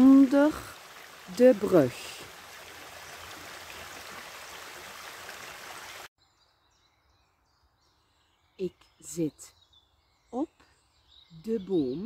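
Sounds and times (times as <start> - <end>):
brook running over rocks: 0.0 - 6.1.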